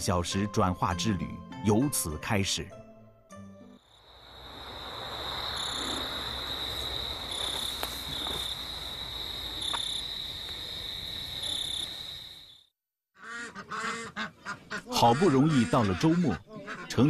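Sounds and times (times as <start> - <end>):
crickets trilling: 3.8 - 12.7.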